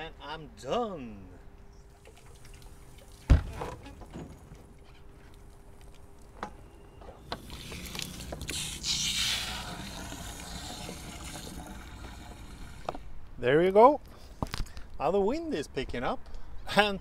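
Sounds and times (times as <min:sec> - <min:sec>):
hose water splashing on deck: 0:07.4 - 0:13.1.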